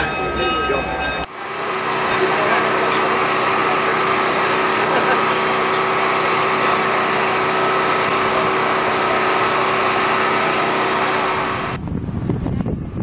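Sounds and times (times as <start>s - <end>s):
car engine running: 1.3s - 11.8s
wind buffeting microphone: 11.5s - 13.0s.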